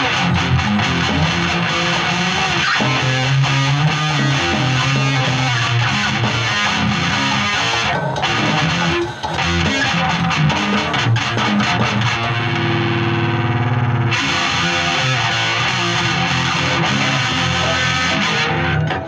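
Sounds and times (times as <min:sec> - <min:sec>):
distorted electric guitar: 0:00.0 - 0:19.0.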